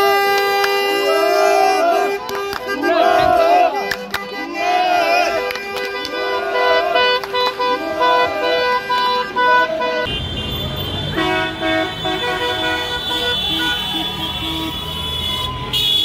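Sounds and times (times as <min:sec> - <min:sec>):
car horns honking: 0:00.0 - 0:16.0
football fans chanting: 0:00.9 - 0:10.1.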